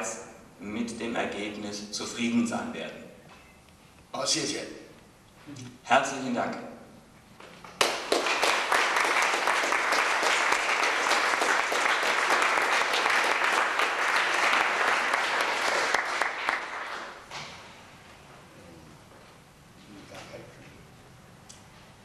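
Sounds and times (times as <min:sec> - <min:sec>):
audience applauding: 0:07.8 - 0:17.3.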